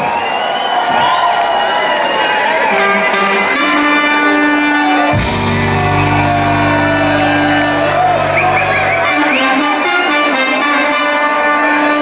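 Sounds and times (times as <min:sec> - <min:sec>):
live ska band: 0:03.1 - 0:12.0
deep held bass note: 0:05.1 - 0:09.6
cymbal crash: 0:05.2 - 0:09.0.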